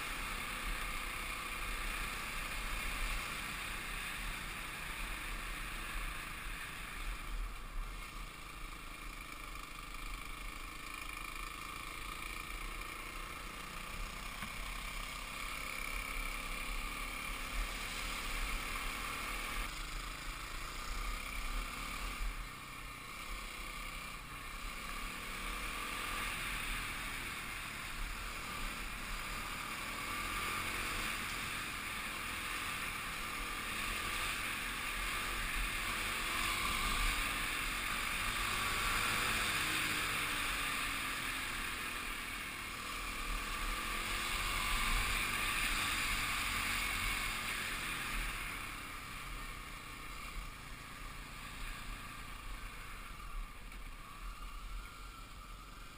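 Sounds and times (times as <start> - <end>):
wind and road noise: 0.0 - 55.9
dirt bike engine revving: 23.0 - 50.7.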